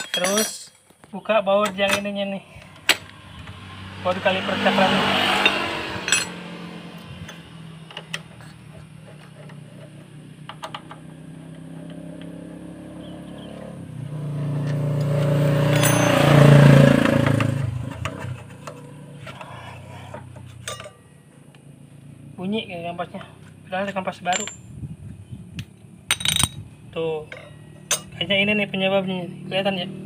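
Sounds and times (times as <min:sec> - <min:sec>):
hand tool clinking on metal: 0:00.0 - 0:00.8, 0:01.6 - 0:03.1, 0:05.4 - 0:06.4, 0:15.6 - 0:16.5, 0:20.6 - 0:21.0, 0:23.8 - 0:24.7, 0:26.1 - 0:26.6, 0:27.2 - 0:28.3
engine passing: 0:02.4 - 0:24.3.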